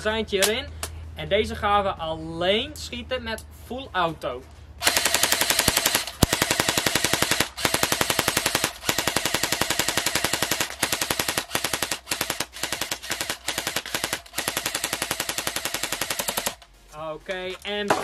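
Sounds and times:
airsoft rifle firing bursts: 4.8 - 16.6.

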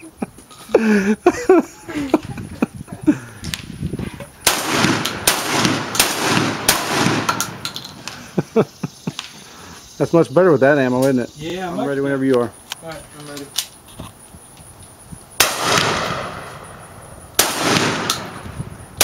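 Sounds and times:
shotgun shots with echo: 4.4 - 7.7, 15.4 - 18.5.

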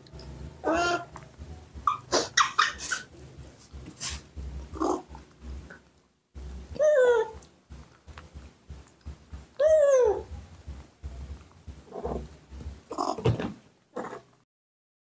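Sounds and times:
young macaques squealing: 1.8 - 3.1.

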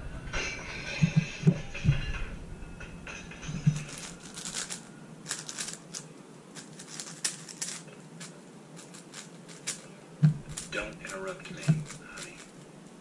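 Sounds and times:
plastic puzzle cube clicking: 3.8 - 9.8, 10.4 - 12.6.

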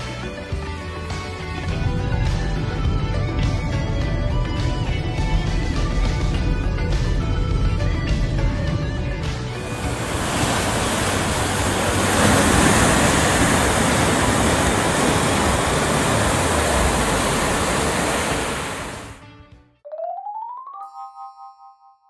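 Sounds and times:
ocean surf rushing: 1.7 - 19.2.

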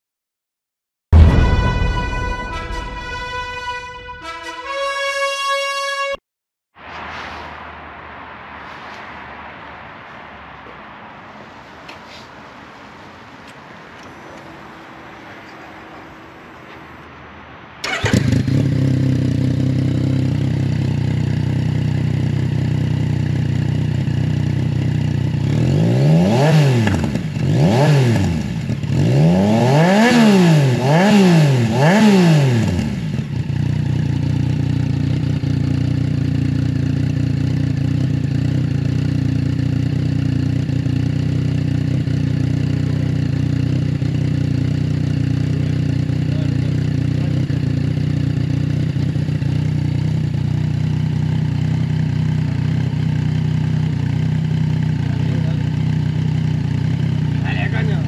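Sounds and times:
motorcycle engine revving and idling: 17.8 - 58.0.

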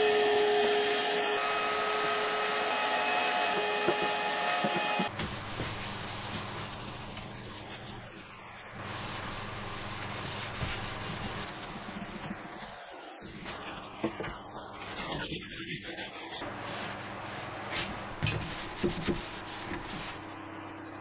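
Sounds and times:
shop vacuum running: 0.0 - 7.6
cloth wiping wood: 4.6 - 7.2, 8.8 - 12.6, 16.4 - 20.4.

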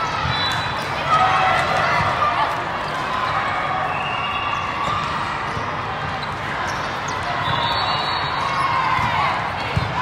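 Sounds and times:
volleyballs hit and bouncing: 0.0 - 3.7, 8.4 - 10.0.

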